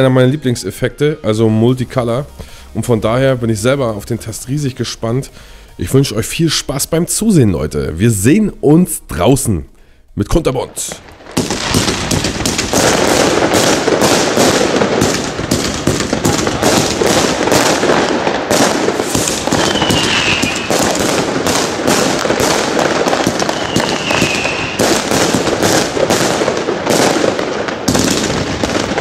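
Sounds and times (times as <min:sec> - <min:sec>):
fireworks launching and bursting: 0:10.5 - 0:29.0.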